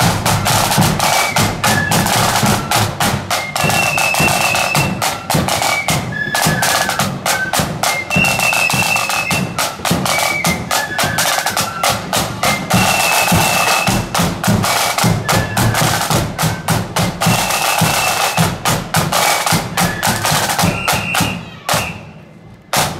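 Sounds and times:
flute melody: 0.0s - 22.4s
snare drums rolling: 0.0s - 22.9s.

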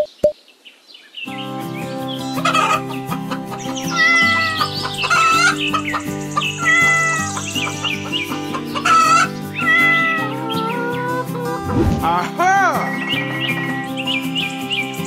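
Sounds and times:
instrumental background music: 1.3s - 15.0s
chickens clucking: 2.1s - 12.0s
rooster crowing: 8.8s - 10.2s.

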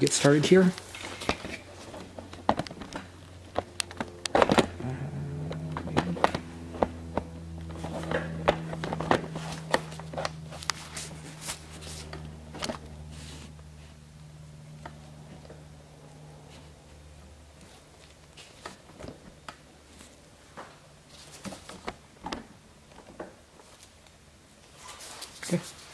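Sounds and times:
low electrical hum: 0.0s - 25.9s.

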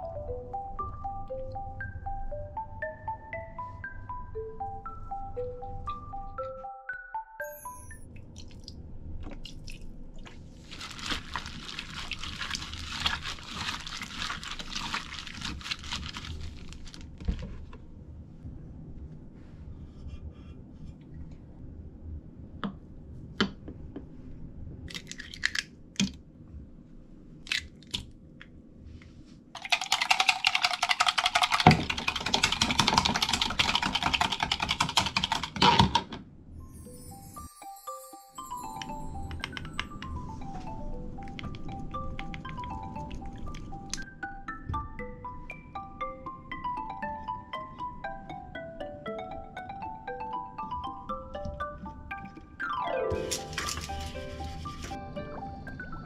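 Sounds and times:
eggs whisked in plastic cup: 10.6s - 16.9s, 29.6s - 35.6s.

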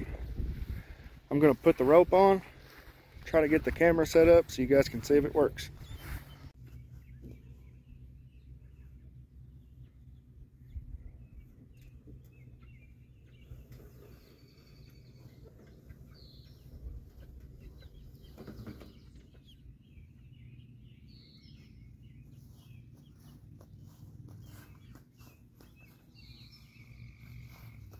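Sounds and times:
wheeled cart rustling over grass: 0.0s - 6.5s, 22.3s - 27.9s
low steady rumble: 0.0s - 27.9s
faint bird chirps: 5.8s - 27.9s.

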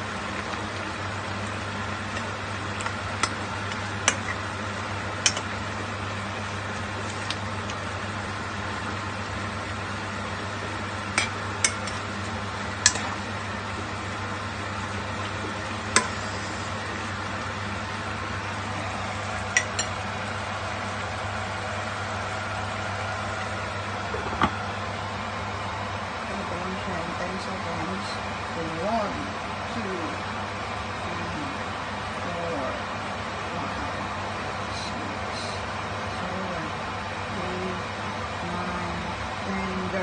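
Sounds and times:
soup bubbling: 0.0s - 25.5s
steady low hum: 0.0s - 40.0s.

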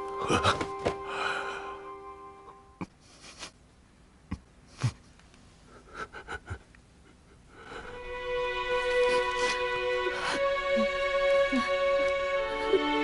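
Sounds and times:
held music chord: 0.0s - 2.8s, 7.9s - 13.0s
man sobbing: 0.1s - 0.9s, 5.7s - 8.0s, 8.6s - 11.9s.

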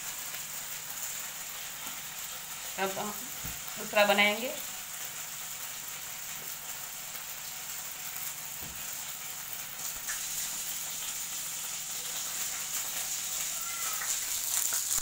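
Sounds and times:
skewer sizzling in oil: 0.0s - 15.0s
faint crackles: 9.7s - 15.0s.

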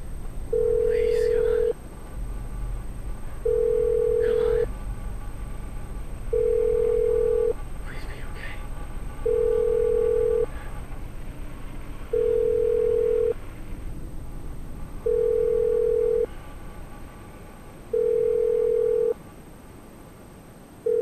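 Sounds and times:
telephone ringback tone: 0.5s - 1.7s, 3.4s - 4.7s, 6.3s - 7.6s, 9.2s - 10.5s, 12.1s - 13.4s, 15.0s - 16.3s, 17.9s - 19.2s.

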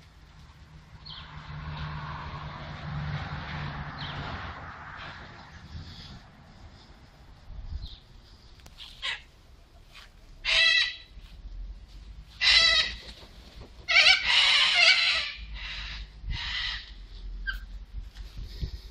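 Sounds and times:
cockatoos screeching: 10.4s - 11.2s, 12.4s - 13.2s, 13.8s - 17.7s.

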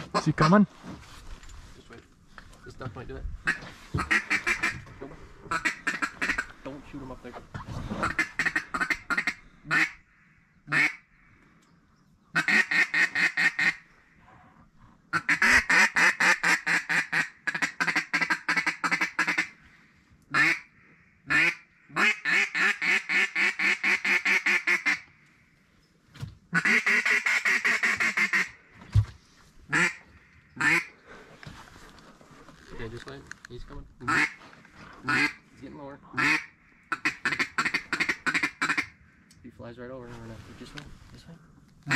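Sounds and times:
duck quacking: 3.5s - 4.8s, 8.0s - 10.0s, 26.5s - 28.6s, 29.7s - 30.0s, 34.1s - 34.4s, 35.0s - 35.4s, 36.1s - 38.9s.

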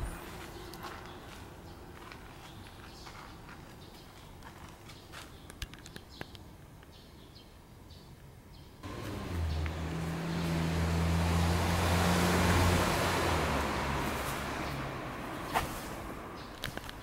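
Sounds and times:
motor vehicle engine hum: 0.0s - 3.6s, 8.8s - 17.0s.

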